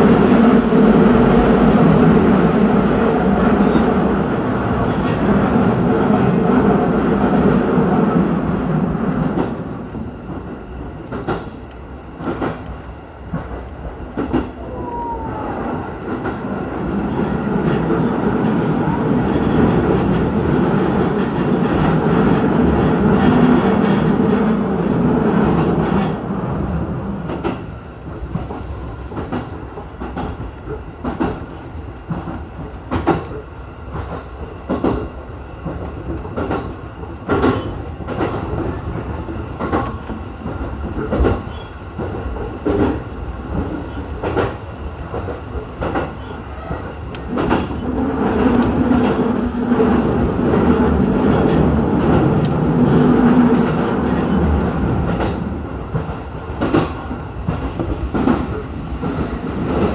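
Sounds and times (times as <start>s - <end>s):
train wheels clicking over rail joints: 28.3s - 59.9s.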